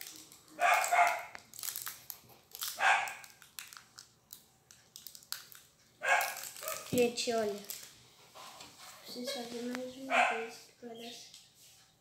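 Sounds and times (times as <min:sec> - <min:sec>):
plastic wrapper crinkling: 0:00.0 - 0:08.0
dog barking: 0:00.6 - 0:01.3, 0:02.8 - 0:03.2, 0:06.0 - 0:06.9, 0:10.0 - 0:10.6.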